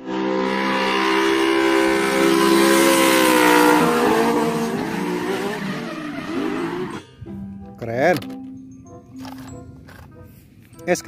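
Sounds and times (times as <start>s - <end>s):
car engines revving high: 0.0s - 7.2s
tyres squealing: 3.8s - 7.1s.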